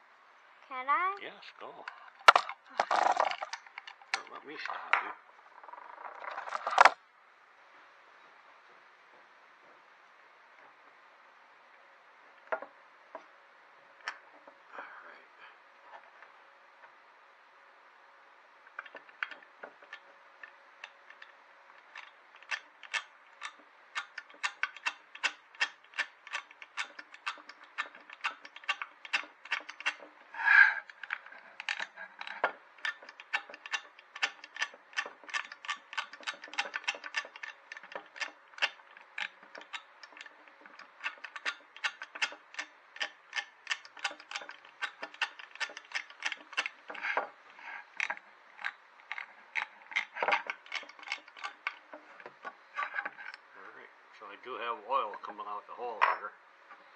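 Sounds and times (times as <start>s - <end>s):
oil pump clicking: 18.7s - 30.2s, 30.9s - 53.4s.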